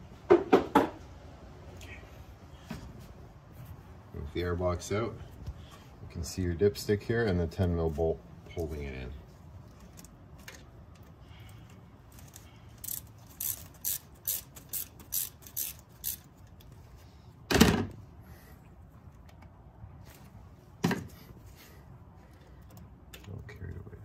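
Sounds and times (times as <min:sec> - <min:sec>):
socket ratchet clicking: 0:12.8 - 0:16.6.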